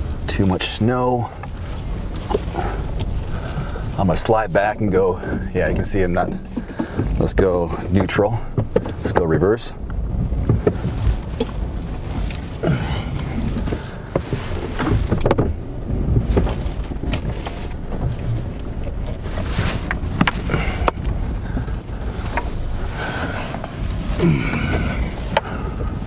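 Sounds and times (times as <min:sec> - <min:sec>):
engine rumbling: 0:00.0 - 0:26.0
tyres churning through snow: 0:19.1 - 0:26.0.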